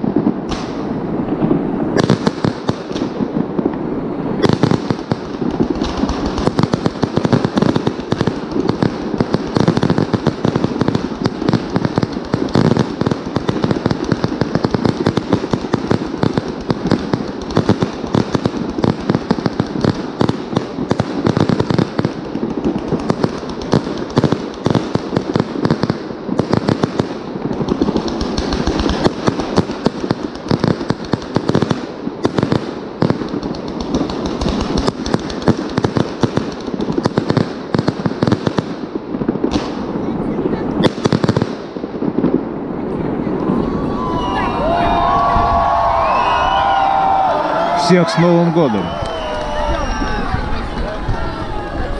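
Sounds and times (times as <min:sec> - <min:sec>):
firework shells bursting: 0:00.0 - 0:40.0.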